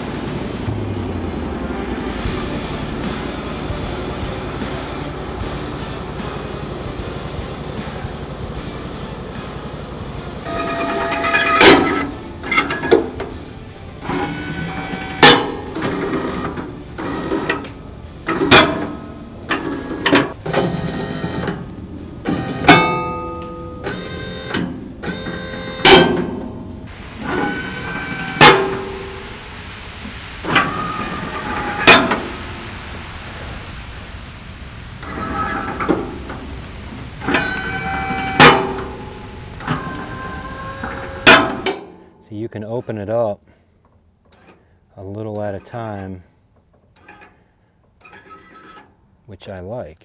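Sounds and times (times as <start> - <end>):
sharp accent hits: 0.0 - 16.8
plucked guitar-like music: 0.0 - 20.4.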